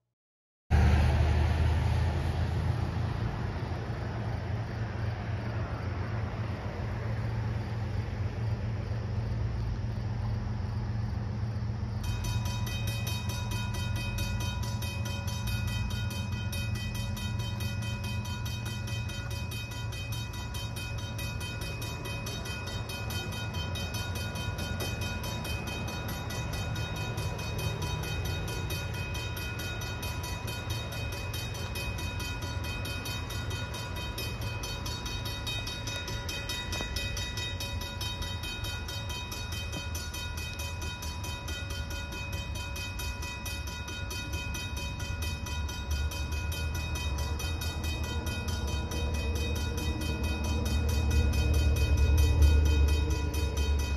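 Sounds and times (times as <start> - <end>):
railroad crossing bell clanging: 2.2 - 53.9
steady low rumble: 43.9 - 53.9.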